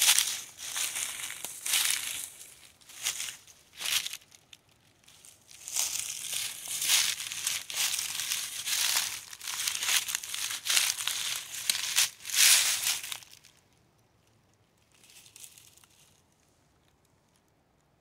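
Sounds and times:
footsteps crunching dead leaves: 0:00.0 - 0:13.6.

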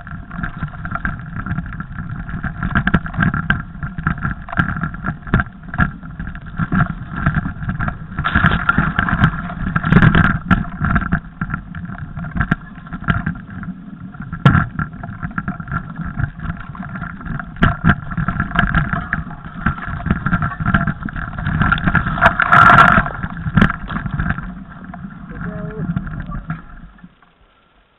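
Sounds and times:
bike knocks and rattles: 0:00.0 - 0:13.6
tyre and wind rumble: 0:00.0 - 0:27.4.

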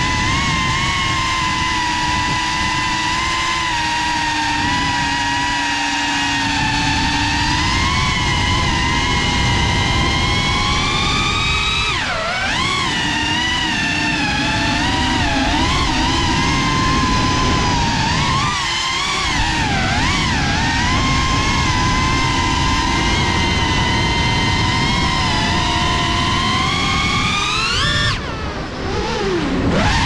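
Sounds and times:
drone motors whining: 0:00.0 - 0:30.0
wind on microphone: 0:00.0 - 0:30.0.

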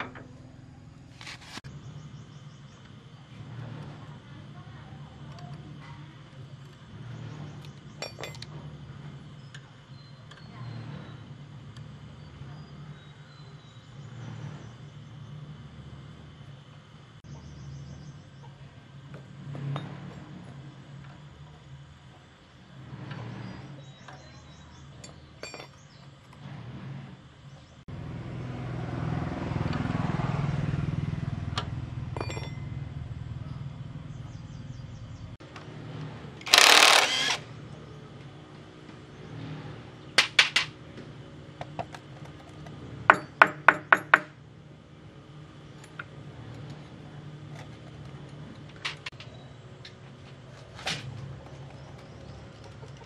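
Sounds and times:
metal tool clinks: 0:32.2 - 0:32.7
impact wrench bursts: 0:36.4 - 0:37.5.

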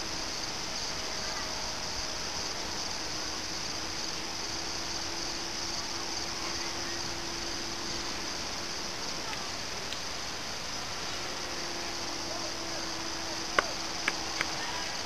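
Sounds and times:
insects chirring: 0:00.0 - 0:15.0
model plane motor humming: 0:00.0 - 0:15.0.

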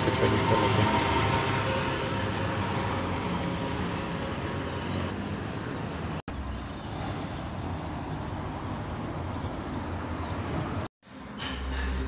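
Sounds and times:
street traffic: 0:00.0 - 0:12.0.

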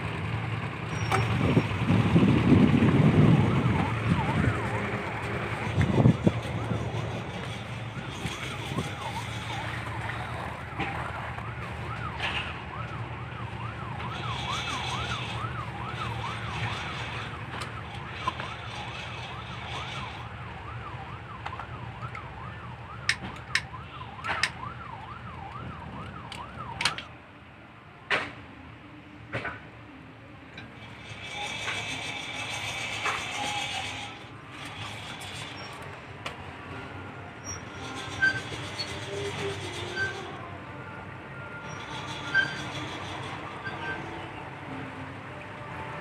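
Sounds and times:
barge engine running: 0:00.0 - 0:24.7, 0:28.5 - 0:46.0
warbling siren-like tone: 0:00.9 - 0:27.1, 0:36.7 - 0:44.3.

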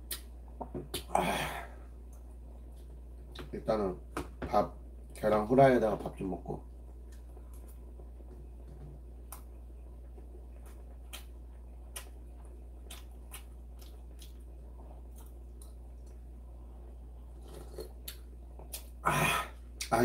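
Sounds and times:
man chewing with mouth smacks: 0:00.0 - 0:00.3, 0:09.3 - 0:16.3, 0:17.4 - 0:19.0
faint low hum: 0:00.0 - 0:20.0.

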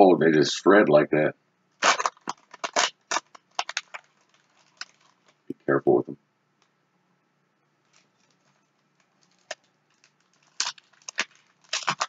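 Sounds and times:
foil wrapper crinkling and tearing: 0:01.8 - 0:05.5, 0:07.8 - 0:12.0.

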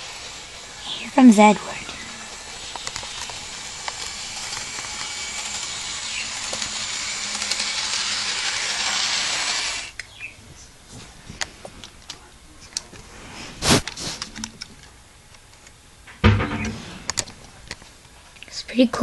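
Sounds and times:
model train motor whirring: 0:00.0 - 0:10.2.

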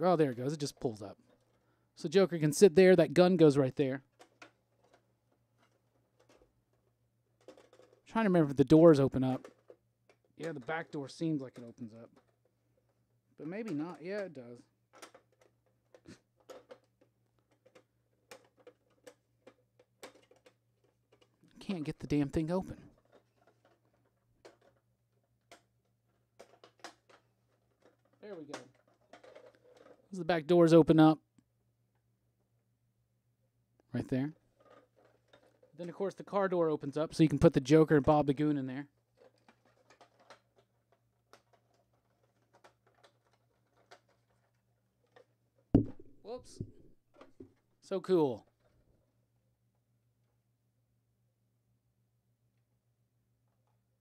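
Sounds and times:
plastic toy clicks: 0:14.9 - 0:21.3.

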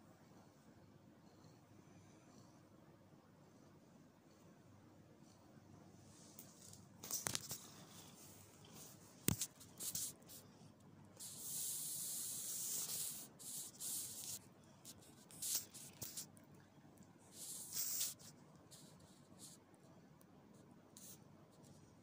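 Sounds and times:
hand rustling cat fur: 0:06.0 - 0:10.5, 0:11.2 - 0:16.4, 0:17.3 - 0:19.6.

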